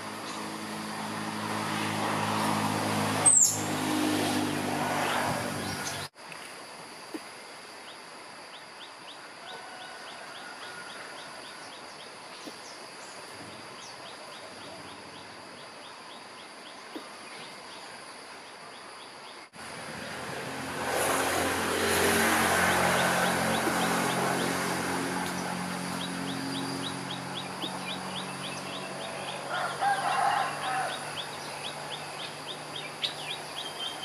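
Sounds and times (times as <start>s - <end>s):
squirrel calling: 3.2s - 3.7s
high insect-like drone: 17.8s - 34.0s.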